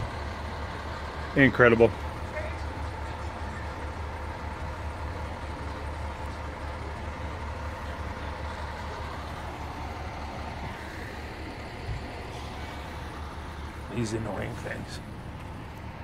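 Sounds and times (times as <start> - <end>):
diesel engines idling: 0.0 - 16.0.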